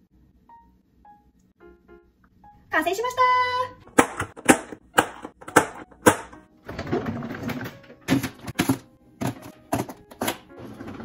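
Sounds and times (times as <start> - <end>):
plastic rustling and scraping: 6.7 - 11.0.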